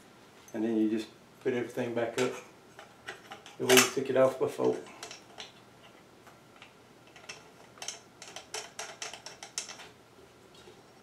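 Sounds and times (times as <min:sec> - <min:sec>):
glass and metal light clicks: 0:06.6 - 0:09.9.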